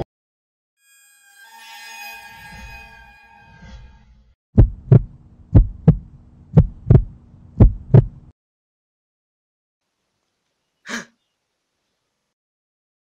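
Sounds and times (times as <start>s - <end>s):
heartbeat thumps: 4.6s - 8.3s
low steady hum: 4.6s - 8.3s.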